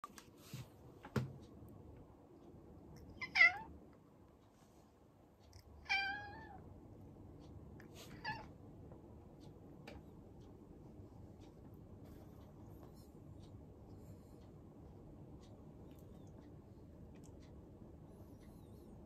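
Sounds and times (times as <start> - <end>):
cat meowing: 3.2 - 3.7, 5.8 - 6.6, 8.1 - 8.5.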